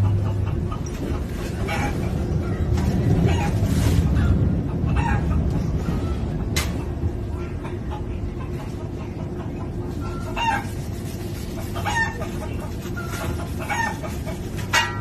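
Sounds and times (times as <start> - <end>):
recorded chicken clucking: 0.0 - 15.0
train carriage rumble: 0.0 - 15.0.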